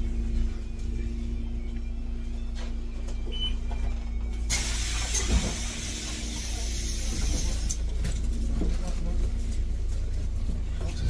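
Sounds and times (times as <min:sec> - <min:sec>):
bus interior rumble: 0:00.0 - 0:11.0
loud air hiss: 0:04.5 - 0:07.7.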